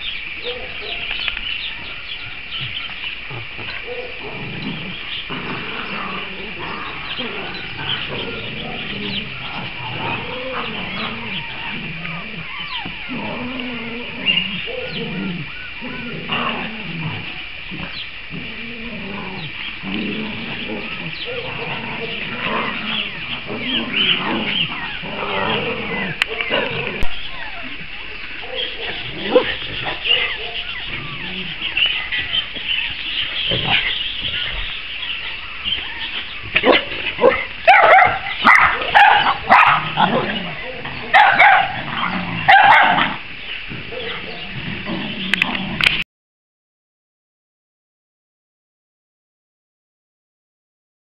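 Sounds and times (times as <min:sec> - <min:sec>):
dogs whining and howling: 0:00.0 - 0:02.8, 0:03.6 - 0:34.8, 0:35.5 - 0:46.0
dog yelp: 0:36.6 - 0:40.3, 0:41.0 - 0:43.2.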